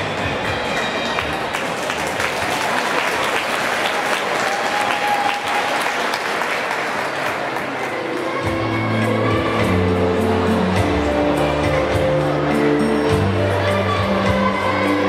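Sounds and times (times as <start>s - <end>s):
audience applauding: 0.7s - 8.7s
dance music: 7.7s - 15.0s.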